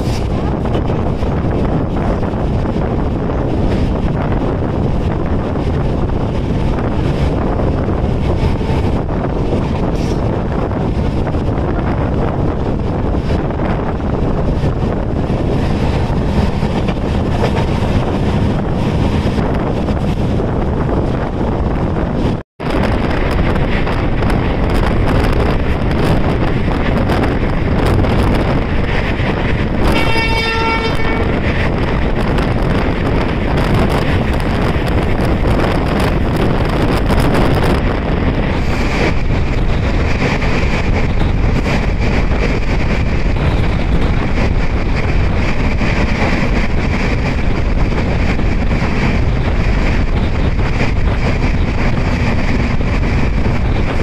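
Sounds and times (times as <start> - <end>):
passenger train running: 0.0 - 54.0
wind buffeting microphone: 0.0 - 54.0
train horn: 29.8 - 31.4.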